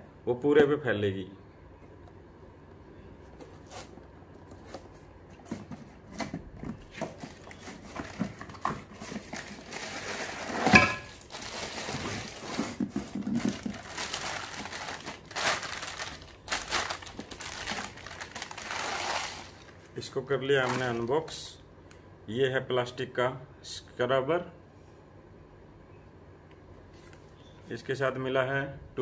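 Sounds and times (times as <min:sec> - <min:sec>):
cardboard box rustling: 0:04.6 - 0:19.7
plastic bag crinkling: 0:07.2 - 0:19.8, 0:20.5 - 0:21.3.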